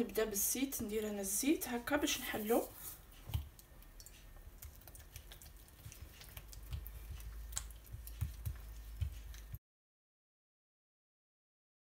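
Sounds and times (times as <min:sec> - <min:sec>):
hands patting dough: 0:00.9 - 0:09.6.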